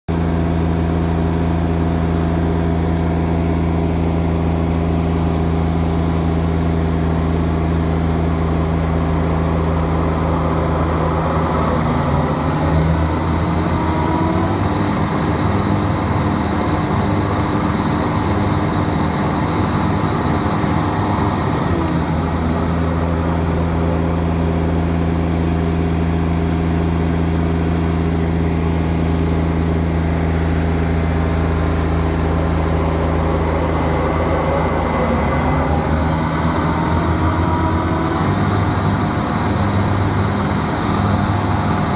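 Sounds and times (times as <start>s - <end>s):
tractor diesel engine running: 0.1s - 41.9s
mower blades whining: 31.1s - 41.9s.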